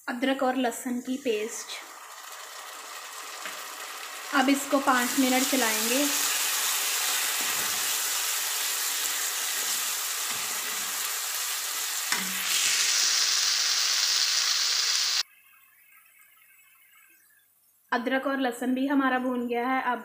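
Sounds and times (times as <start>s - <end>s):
onions sizzling in hot oil: 0.7s - 15.2s.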